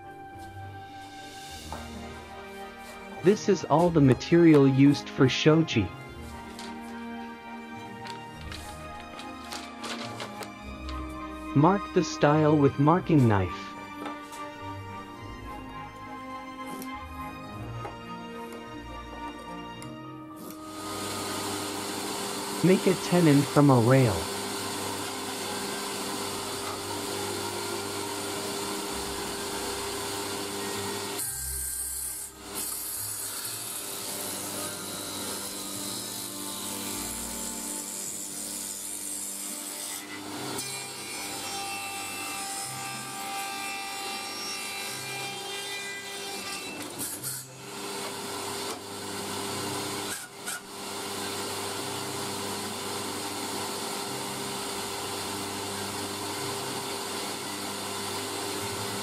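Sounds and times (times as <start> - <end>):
tenoning machine cutting wood: 1.4 - 14.6, 20.4 - 59.0.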